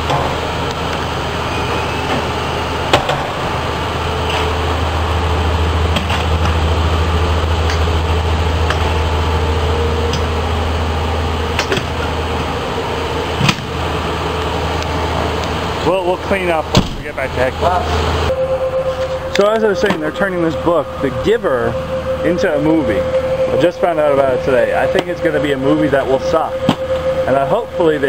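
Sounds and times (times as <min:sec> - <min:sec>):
idling vehicle low hum: 0:00.0 - 0:28.0.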